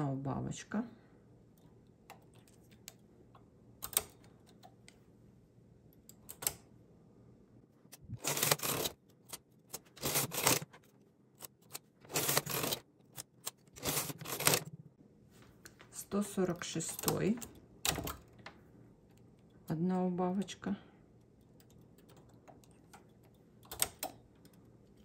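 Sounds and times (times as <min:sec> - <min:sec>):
knitting machine carriage clattering: 0:08.1 - 0:10.8, 0:11.4 - 0:14.8.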